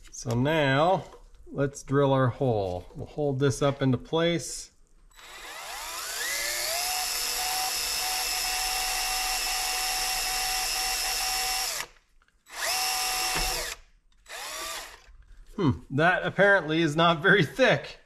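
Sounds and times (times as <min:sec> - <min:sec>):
power drill whining and drilling: 0:05.1 - 0:15.2.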